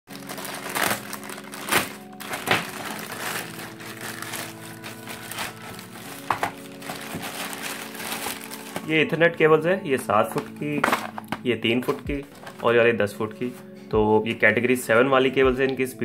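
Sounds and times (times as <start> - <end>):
plastic bag crinkling and tearing: 0.1 - 9.0, 10.0 - 12.7.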